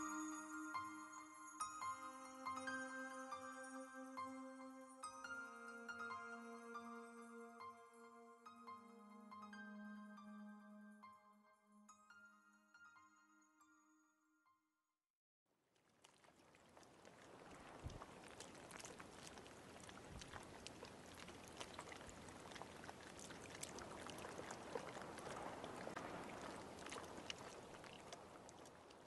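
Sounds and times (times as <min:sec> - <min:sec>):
rain falling on water: 0:15.6 - 0:29.0.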